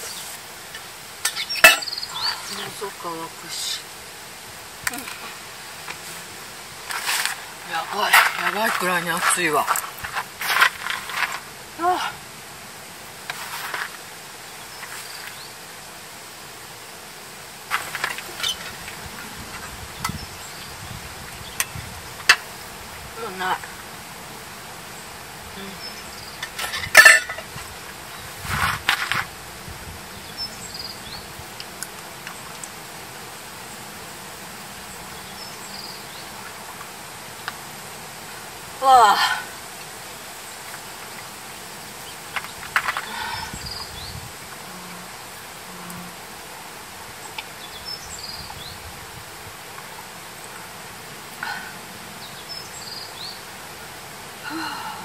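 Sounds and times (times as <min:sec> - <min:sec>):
insects: 0:00.0 - 0:55.0
small bird chirping: 0:01.2 - 0:03.8.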